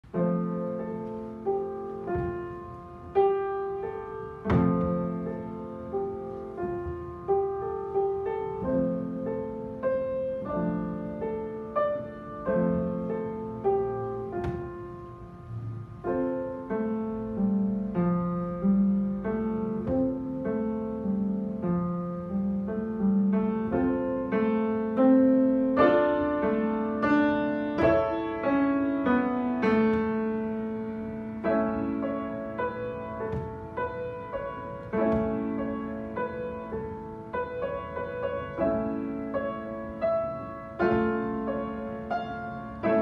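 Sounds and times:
solo piano melody: 0.0s - 43.0s.

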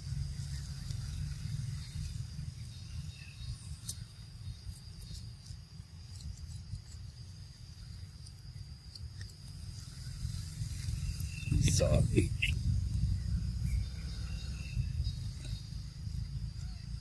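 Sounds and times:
insect chirring: 0.0s - 17.0s
low rumble: 9.6s - 17.0s.

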